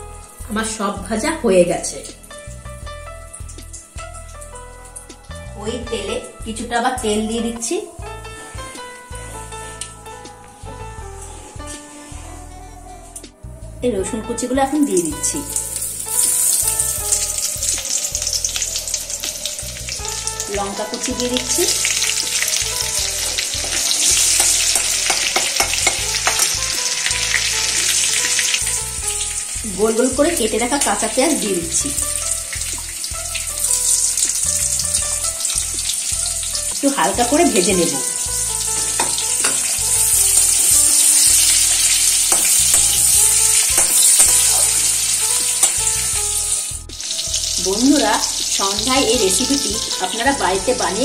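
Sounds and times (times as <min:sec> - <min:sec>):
garlic sizzling in hot oil: 0:14.7 - 0:51.0
metal spatula scraping a pan: 0:38.8 - 0:46.0.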